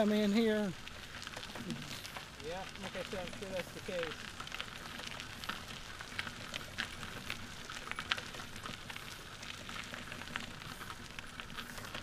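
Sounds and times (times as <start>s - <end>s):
tyres rolling over gravel: 0.0s - 12.0s.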